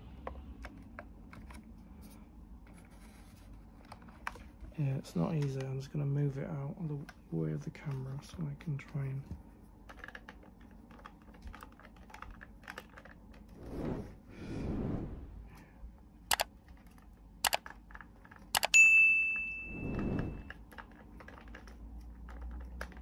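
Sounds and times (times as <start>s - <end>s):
small model parts clicking: 16.3s - 18.8s
metallic ding: 18.8s - 19.7s.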